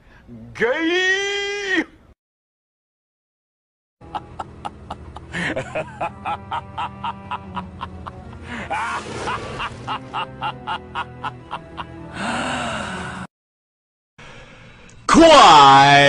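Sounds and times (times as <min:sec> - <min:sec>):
evil cackling laugh: 0:04.0 - 0:12.2
long drawn-out laughing cries: 0:04.0 - 0:12.8
music bed: 0:04.0 - 0:12.8.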